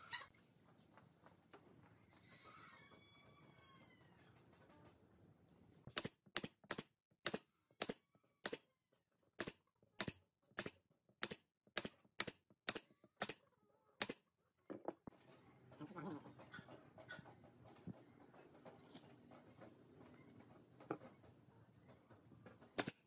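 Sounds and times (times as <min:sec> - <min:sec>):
nail gun firing into wood: 0:06.0 - 0:08.6, 0:09.4 - 0:13.4, 0:22.8 - 0:23.0.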